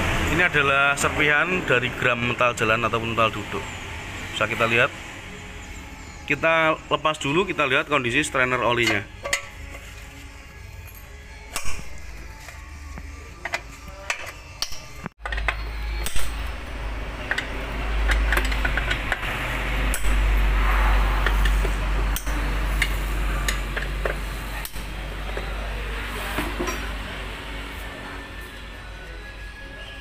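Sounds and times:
metal tools clinking on engine: 8.6s - 12.6s, 13.4s - 20.2s, 26.4s - 27.0s.

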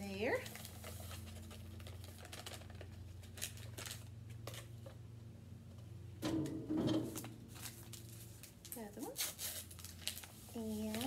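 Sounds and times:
paper packet crinkling: 0.2s - 5.0s, 7.1s - 11.0s
steady low hum: 3.0s - 9.1s.

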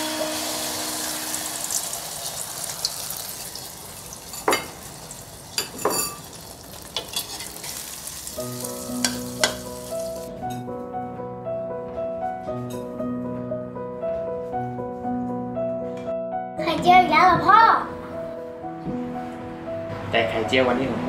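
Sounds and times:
music: 0.0s - 2.6s, 8.2s - 21.0s
food sizzling in a wok: 0.0s - 10.3s
metal ladle scraping a pan: 7.0s - 7.9s.

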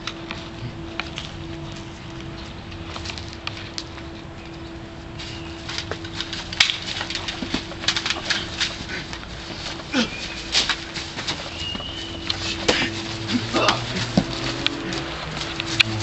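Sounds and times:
footsteps crunching on leaves: 0.0s - 16.0s
sharp crack: 5.9s - 9.2s.

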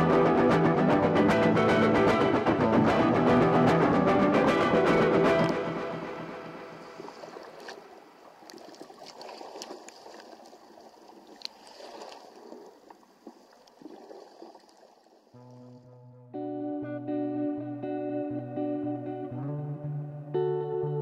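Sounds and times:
music: 0.0s - 6.9s, 15.4s - 21.0s
water rushing along a hull: 5.4s - 15.2s.

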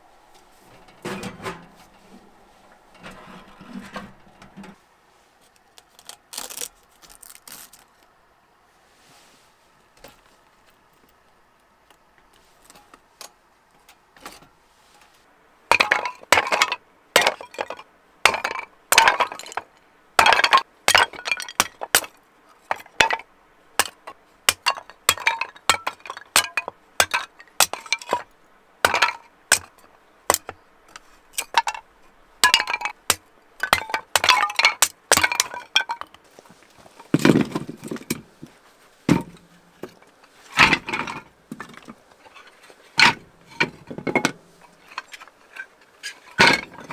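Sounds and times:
heavy wood clunk: 37.0s - 38.5s, 39.1s - 42.0s.

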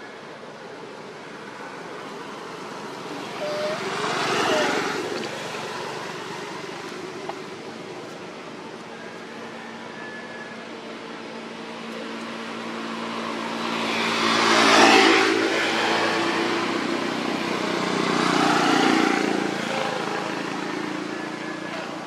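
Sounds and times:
motor vehicle passing by: 2.3s - 7.2s, 12.3s - 22.0s.

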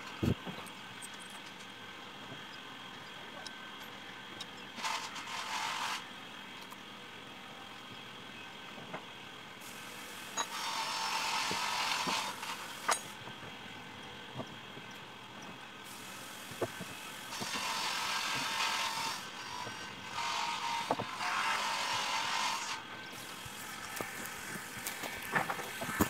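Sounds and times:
wood scraping and rustling: 16.5s - 26.0s.

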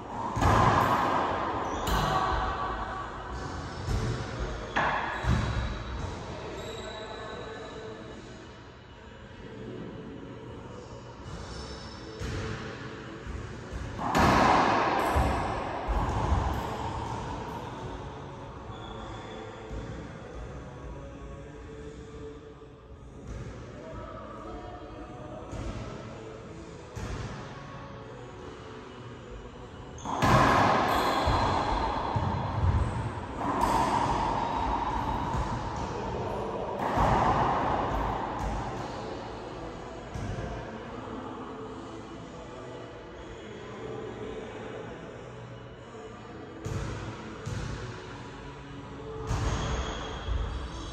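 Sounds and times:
racquet hitting ball with echo: 0.0s - 6.6s, 12.1s - 18.9s, 29.9s - 40.8s, 46.6s - 48.2s.

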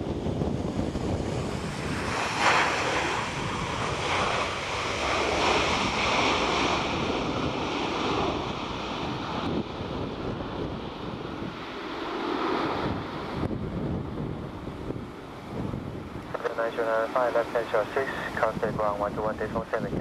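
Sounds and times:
wind buffeting microphone: 0.0s - 16.6s, 17.6s - 20.0s
jet engines at taxi power: 0.0s - 20.0s.

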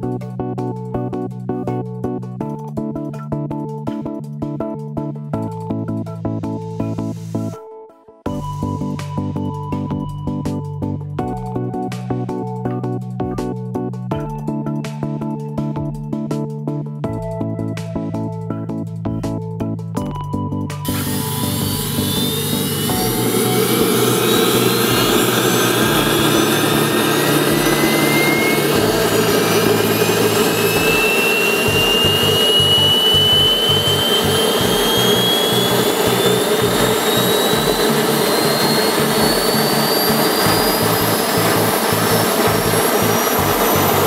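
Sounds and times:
turbine whine rising in pitch: 20.8s - 44.0s
jet engine roaring: 20.9s - 44.0s.

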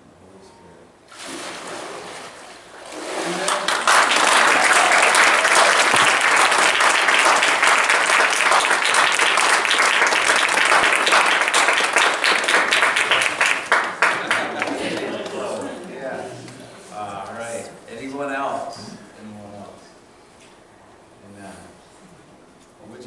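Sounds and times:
water sloshing and splashing: 1.1s - 3.7s
congregation clapping: 3.2s - 15.9s.

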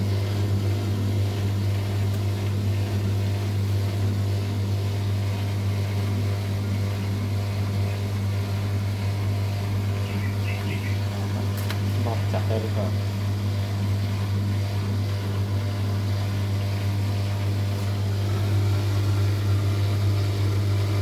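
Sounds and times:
washing machine motor humming: 0.0s - 21.0s.

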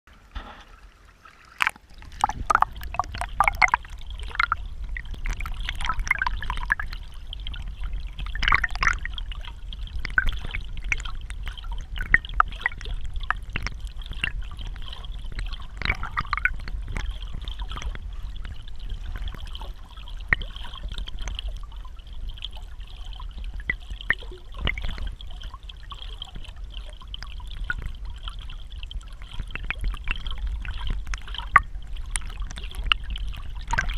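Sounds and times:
underwater current rumble: 0.1s - 33.9s
water gurgling: 0.1s - 33.9s
clicks and ticks: 1.6s - 7.0s.

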